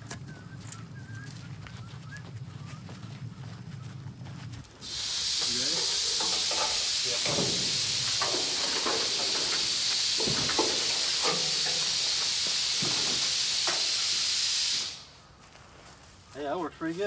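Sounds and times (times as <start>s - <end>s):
loud high-pitched hiss: 4.8s - 15.3s.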